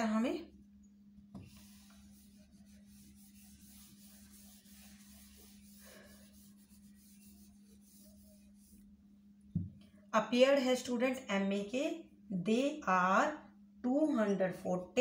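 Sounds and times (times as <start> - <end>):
steady low hum: 0.0 - 15.0
duster wiping a whiteboard: 1.3 - 9.0.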